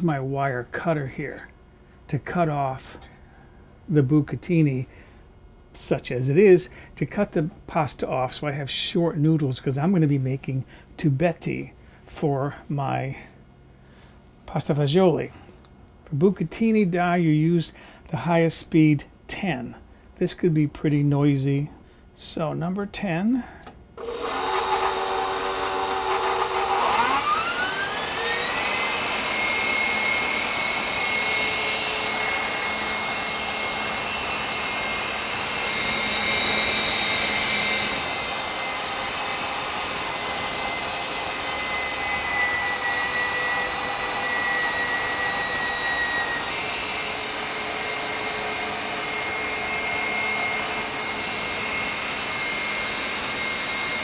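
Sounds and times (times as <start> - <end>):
stand mixer motor whine: 24.0 - 54.0.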